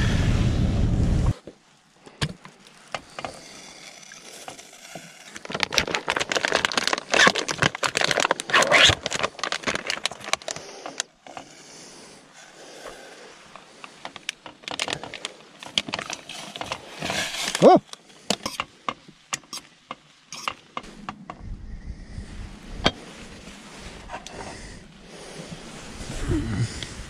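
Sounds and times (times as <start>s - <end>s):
plastic packet torn and crinkled: 4.1s - 11.1s, 14.2s - 18.0s.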